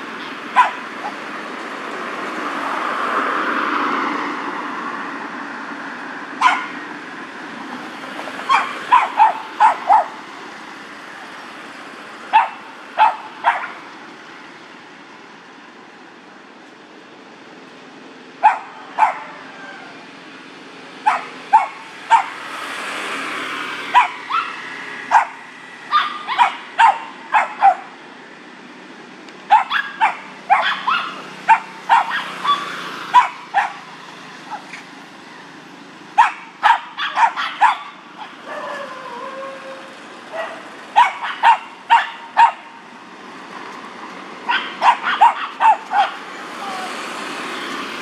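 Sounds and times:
small dog barking: 0.5s - 1.2s, 6.4s - 6.8s, 8.5s - 10.2s, 12.3s - 13.8s, 18.4s - 19.4s, 21.0s - 22.4s, 23.9s - 27.9s, 29.5s - 33.9s, 36.2s - 39.0s, 40.3s - 42.8s, 44.4s - 46.2s.

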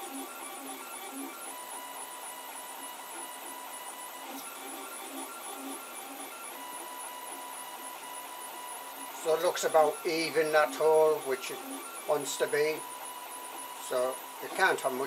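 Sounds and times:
stepper motors humming: 0.0s - 15.0s.

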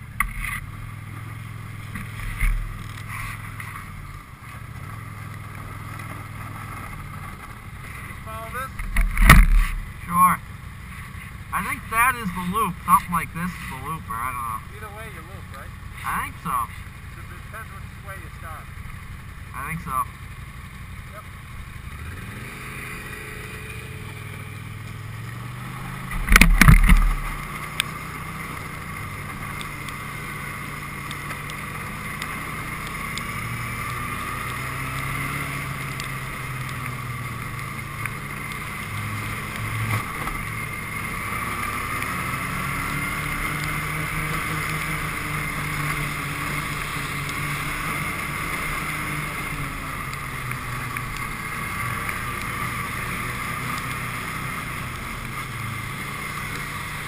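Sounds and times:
snowmobile engine: 0.0s - 57.0s
loud thump: 8.9s - 9.7s.

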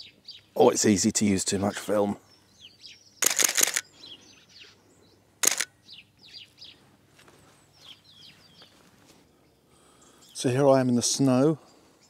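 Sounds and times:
small birds chirping: 0.0s - 12.0s
camera shutter rapid burst: 3.2s - 3.8s, 5.4s - 5.7s.

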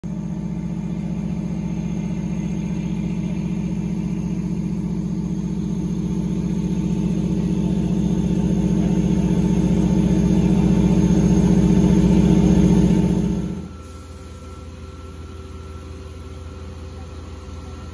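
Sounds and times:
fire engine pumps droning: 0.0s - 17.9s.

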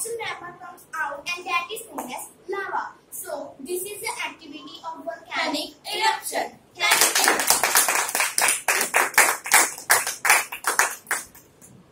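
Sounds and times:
group clapping: 6.8s - 11.7s.

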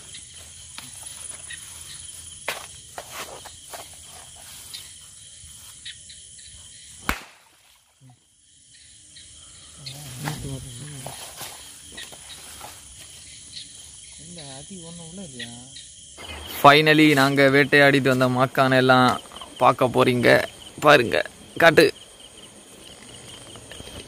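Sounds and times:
rustling through vegetation: 0.0s - 8.1s, 9.8s - 14.6s, 16.2s - 24.0s
crickets trilling: 0.0s - 24.0s.

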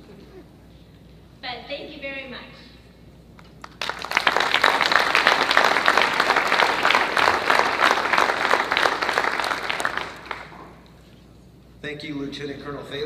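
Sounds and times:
audience applauding: 3.6s - 10.8s.

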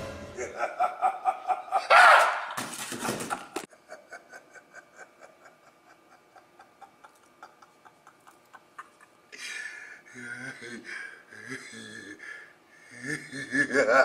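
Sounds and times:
loud sound: 0.0s - 0.6s.

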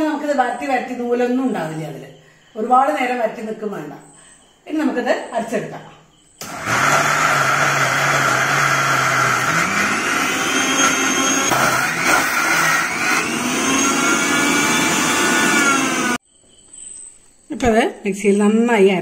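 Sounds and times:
mixer grinder motor running: 6.4s - 16.2s.

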